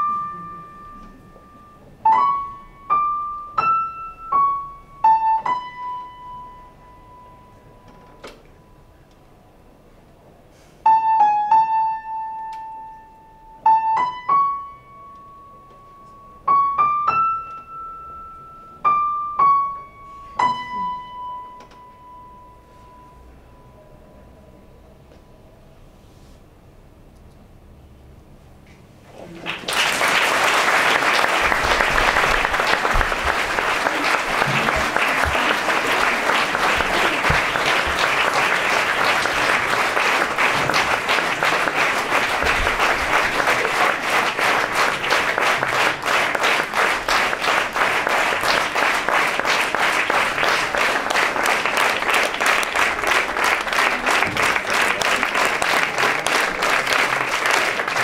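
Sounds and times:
audience applause: 29.2 - 58.0.

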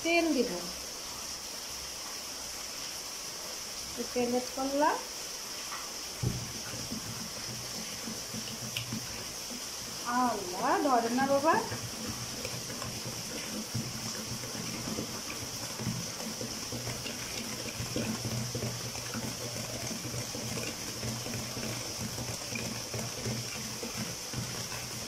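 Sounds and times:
batter sloshing and squelching: 6.1 - 25.0.

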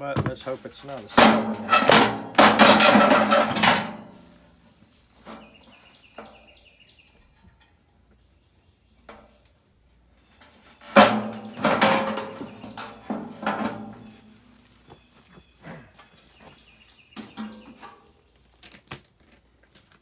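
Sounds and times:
metal clanks and rattles: 0.0 - 4.2, 10.8 - 14.2
loud metallic bangs on housing: 1.1 - 4.1, 10.9 - 14.2.

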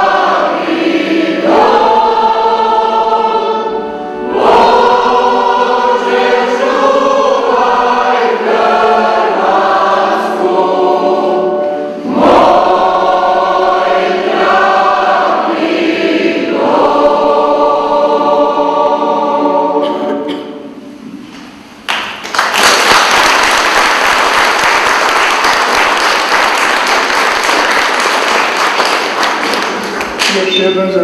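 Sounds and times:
choir singing in chords: 0.0 - 21.2
congregation applauding: 21.8 - 30.5.

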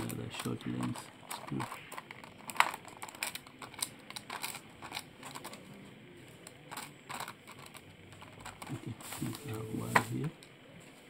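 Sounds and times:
small screws clicking and rattling: 0.0 - 5.8, 6.4 - 9.2.

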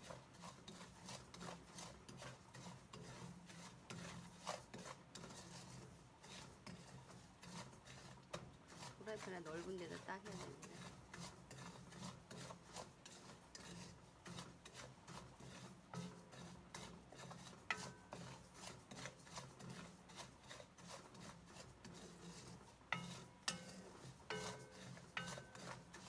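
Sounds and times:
spatula scraping salt in pan: 0.0 - 26.0
spatula knocking ringing pan: 22.9 - 26.0.

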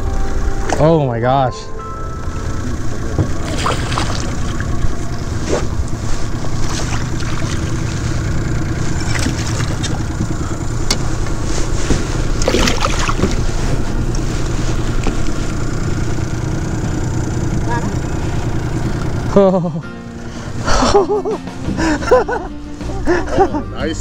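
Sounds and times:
outboard motor running: 0.0 - 24.0
fish splashing at surface: 3.4 - 4.6, 12.4 - 13.4.

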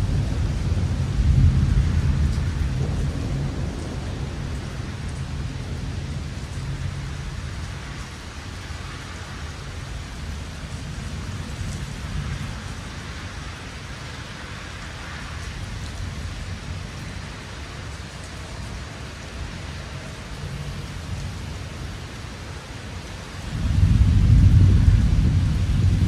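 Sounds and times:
low thunder rumble: 0.0 - 8.0, 23.4 - 26.0
steady rain falling: 0.0 - 26.0.

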